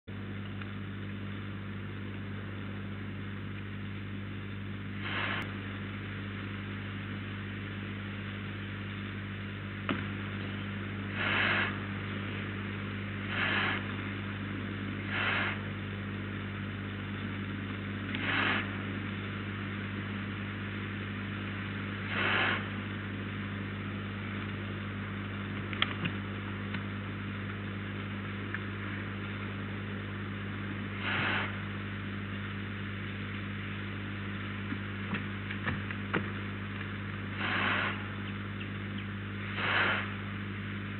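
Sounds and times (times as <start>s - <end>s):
electrical mains hum with hiss: 0.1s - 40.9s
owlet hissing screeches: 5.0s - 5.5s, 11.1s - 11.9s, 13.2s - 14.0s, 15.0s - 15.7s, 18.1s - 18.9s, 22.0s - 22.8s, 31.0s - 31.6s, 37.3s - 38.2s, 39.4s - 40.2s.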